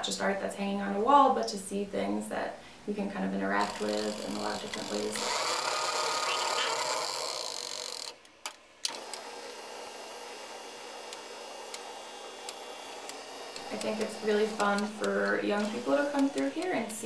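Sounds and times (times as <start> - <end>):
film editing table whirring: 3.6 - 17.0.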